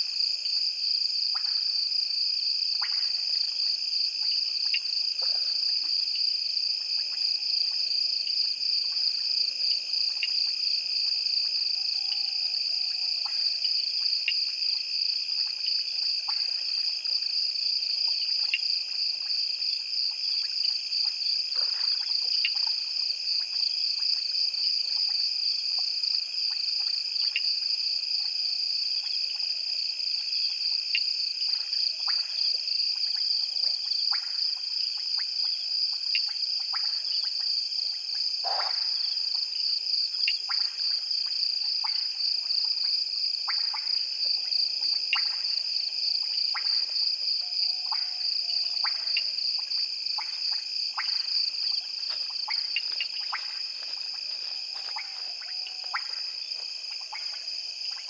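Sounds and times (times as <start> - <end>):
insects trilling: 2.8 - 58.0
frogs calling: 38.4 - 39.4, 41.8 - 57.5.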